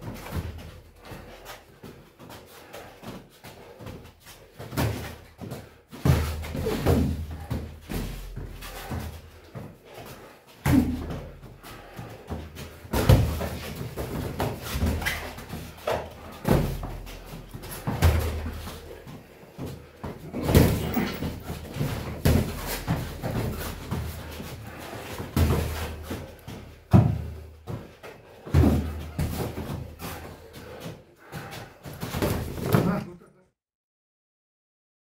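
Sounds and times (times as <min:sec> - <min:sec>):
boxing gloves thudding: 0:12.8 - 0:19.0, 0:20.0 - 0:30.3.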